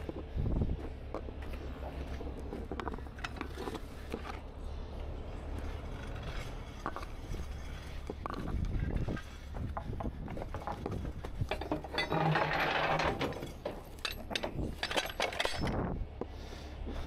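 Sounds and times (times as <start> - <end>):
metal chain clinking and rattling: 9.8 - 16.0.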